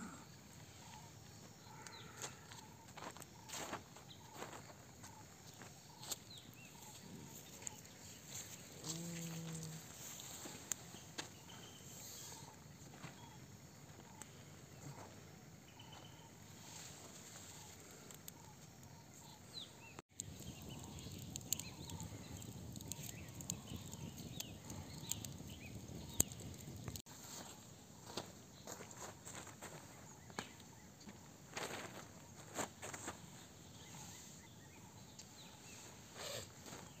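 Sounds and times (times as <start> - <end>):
bird chirps: 10.2 - 13.4, 15.7 - 17.8.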